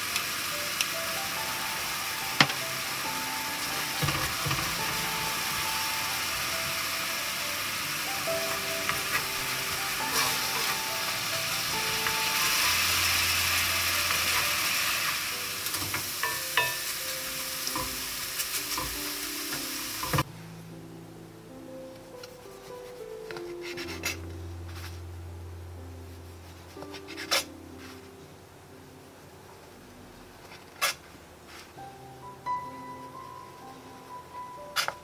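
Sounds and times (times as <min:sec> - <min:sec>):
apples sizzling in bubbling syrup: 0:00.0 - 0:20.3
wooden spoon scraping a pan: 0:08.4 - 0:13.0, 0:22.6 - 0:25.0.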